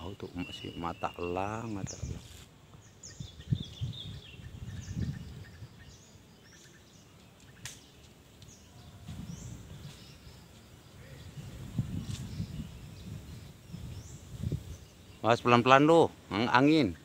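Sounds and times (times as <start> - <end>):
wind buffeting microphone: 0.0 - 6.2, 8.4 - 16.7
small birds chirping: 0.0 - 17.0
sharp click: 7.6 - 8.5.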